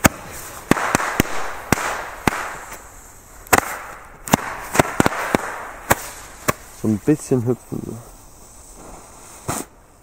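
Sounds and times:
firecrackers banging: 0.0s - 7.2s
firecrackers sputtering hiss: 0.0s - 10.0s.

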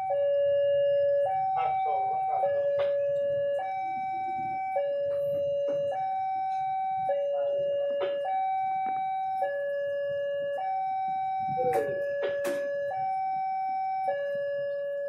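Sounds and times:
level crossing two-tone alarm: 0.0s - 15.0s
sharp knocks: 11.6s - 12.9s.

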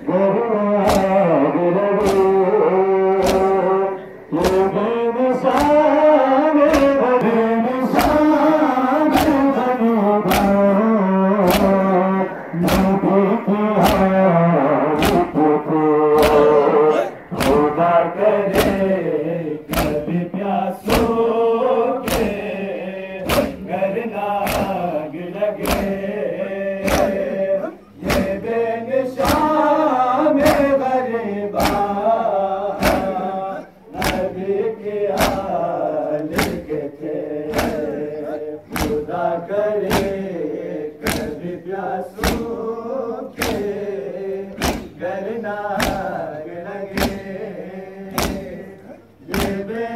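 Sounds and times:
men chanting in unison: 0.0s - 49.9s
chest-beating slaps: 0.8s - 1.3s, 2.0s - 2.5s, 3.1s - 4.8s, 5.4s - 6.0s, 6.6s - 7.3s, 7.9s - 8.4s, 9.0s - 9.6s, 10.2s - 10.8s, 11.4s - 14.3s, 14.9s - 15.5s, 16.1s - 17.8s, 18.4s - 19.0s, 19.6s - 20.1s, 20.8s - 21.3s, 22.0s - 22.6s, 23.2s - 23.7s, 24.4s - 24.9s, 25.5s - 26.1s, 26.8s - 27.4s, 28.0s - 28.4s, 29.1s - 29.6s, 30.3s - 30.8s, 31.5s - 33.3s, 33.9s - 34.4s, 35.1s - 36.8s, 37.4s - 38.0s, 38.6s - 39.1s, 39.8s - 40.3s, 40.9s - 41.4s, 42.1s - 42.6s, 43.3s - 45.0s, 45.7s - 46.3s, 46.9s - 47.4s, 48.0s - 49.7s.

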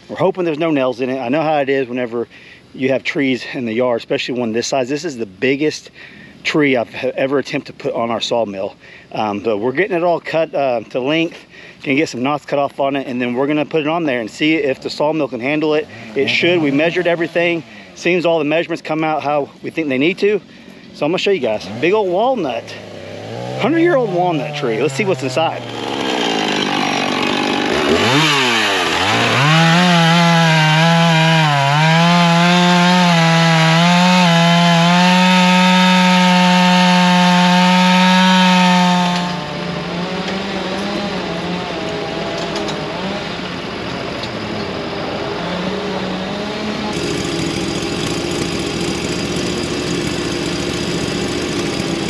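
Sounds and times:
chainsaw cutting log: 15.4s - 19.0s, 21.0s - 43.5s, 45.5s - 52.0s
loader engine running: 21.0s - 52.0s.

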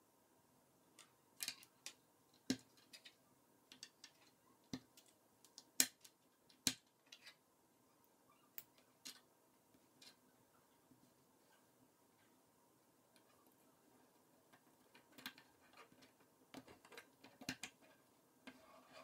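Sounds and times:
plastic toy pieces clicking: 1.4s - 3.1s.

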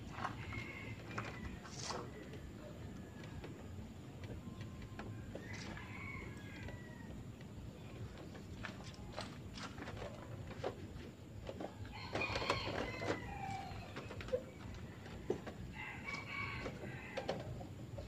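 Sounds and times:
rooster crowing: 0.1s - 3.7s, 5.3s - 7.3s, 11.8s - 14.1s, 14.8s - 17.6s.

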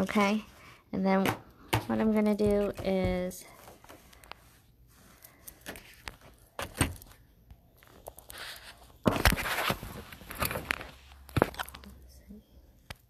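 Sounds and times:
phone handling rustling and knocking: 5.5s - 7.2s.

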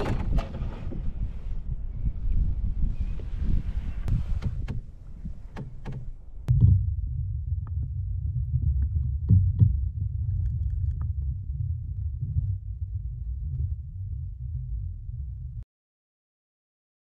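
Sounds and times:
muffled underwater rumble: 6.4s - 15.6s.

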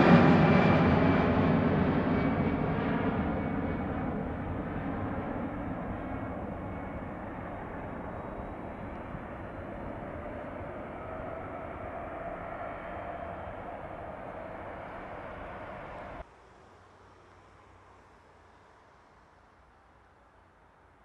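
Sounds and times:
jet engines rumbling: 0.0s - 16.3s.

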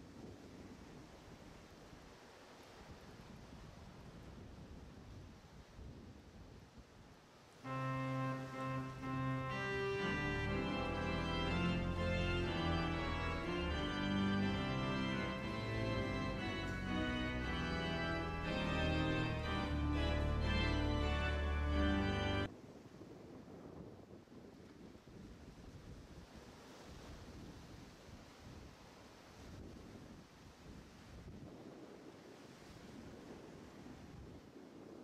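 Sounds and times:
organ playing a hymn: 7.7s - 22.5s.

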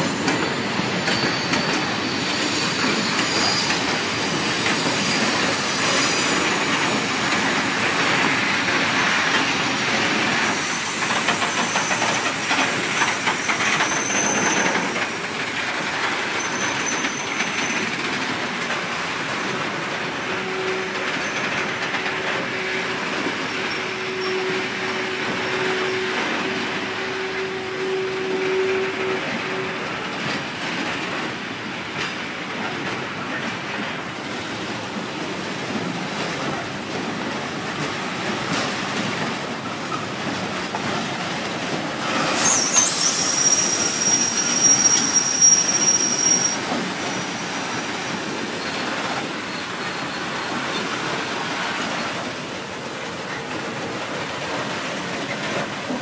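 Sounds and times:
metallic wheel squeal: 0.0s - 8.4s, 9.8s - 15.0s, 16.3s - 17.9s, 23.4s - 26.5s, 42.3s - 47.3s
train wheels rumbling on rails: 0.0s - 56.0s.

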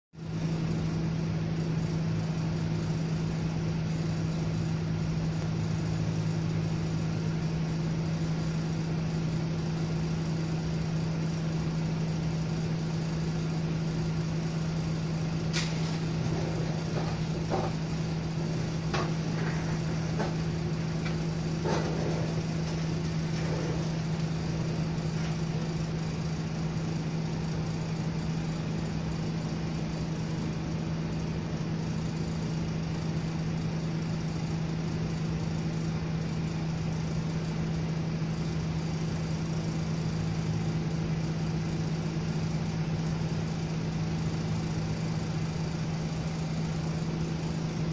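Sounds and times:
steady low hum: 0.2s - 47.9s
sharp clicks and knocks: 15.5s - 18.0s, 18.9s - 24.0s.

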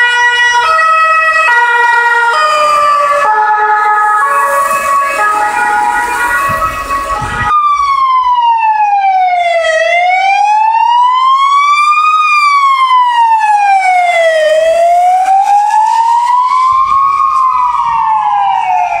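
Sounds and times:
emergency vehicle siren wailing: 0.0s - 19.0s.

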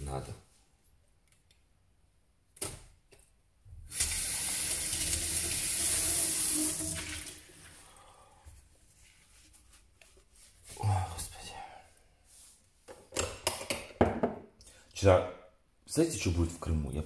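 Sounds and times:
water running from a tap: 3.9s - 7.8s.

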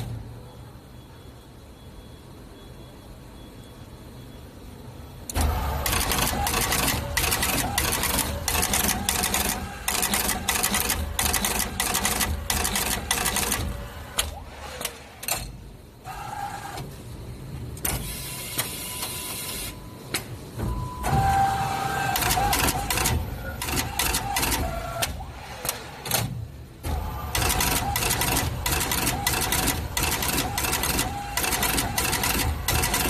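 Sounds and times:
machine mechanical clatter: 5.2s - 19.4s, 22.0s - 33.0s
machine clicks and whirr: 5.2s - 33.0s.

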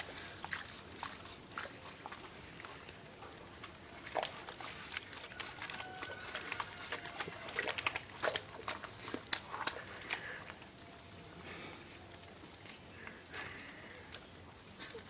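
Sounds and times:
dog snuffling in wet mud: 0.0s - 10.7s.

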